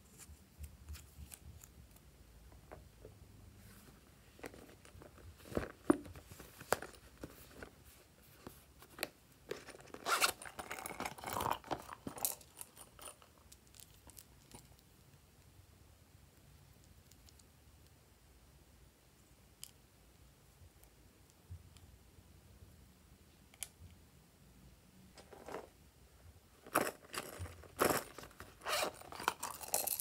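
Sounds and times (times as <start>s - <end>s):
plastic scraping and rustling: 26.6s - 30.0s.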